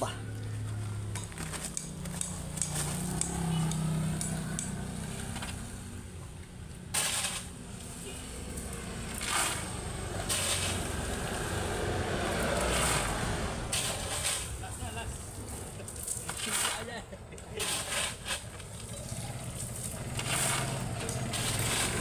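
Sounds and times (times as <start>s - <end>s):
shovel scraping gravel: 6.9s - 11.4s, 12.4s - 22.0s.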